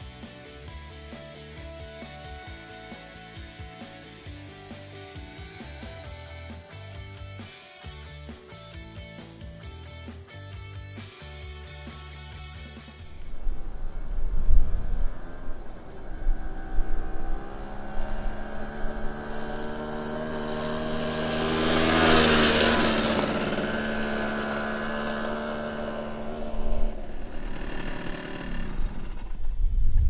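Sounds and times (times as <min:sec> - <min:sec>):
moped engine passing by: 0:13.0 - 0:29.7.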